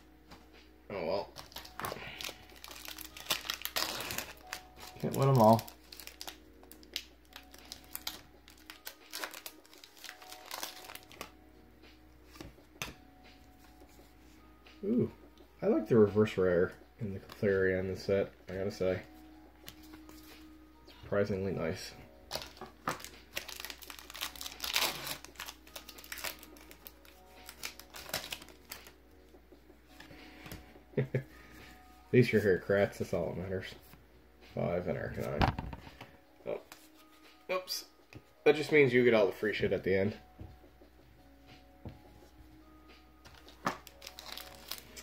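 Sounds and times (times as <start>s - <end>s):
foil wrapper crinkling and tearing: 1.4s - 11.3s, 22.3s - 29.0s, 43.3s - 45.0s
trading cards handled: 1.4s - 11.3s, 22.3s - 28.9s, 43.2s - 45.0s.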